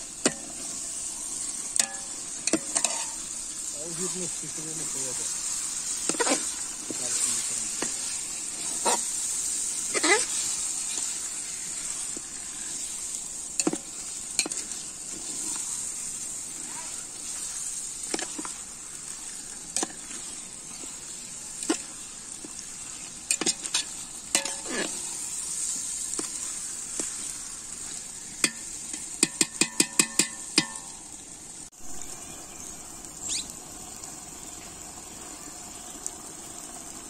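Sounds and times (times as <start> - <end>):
chicken sizzling in a pot: 0.0 - 37.0
open-air ambience: 0.0 - 37.0
stick knocking against pot: 28.4 - 30.9.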